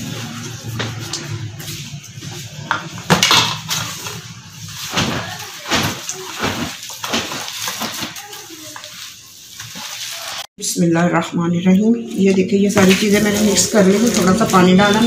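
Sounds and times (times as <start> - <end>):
hand squishing food mixture: 3.7 - 10.5, 12.2 - 15.0.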